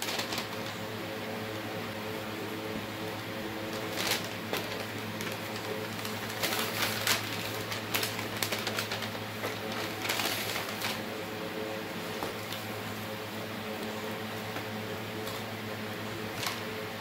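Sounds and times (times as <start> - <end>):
paper bag crinkling: 0.0 - 0.9, 3.2 - 11.3
steady low hum: 0.0 - 17.0.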